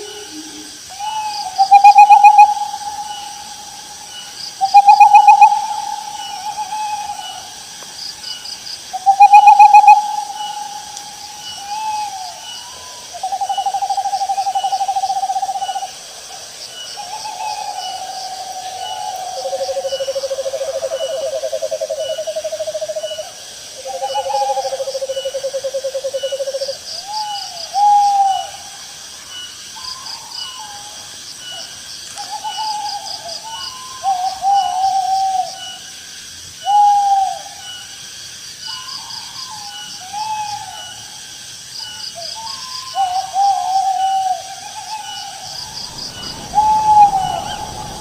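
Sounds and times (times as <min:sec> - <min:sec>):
owls trilling and hooting: 0:00.0 - 0:03.7, 0:04.7 - 0:07.6, 0:09.0 - 0:15.9
insects chirping: 0:00.0 - 0:48.0.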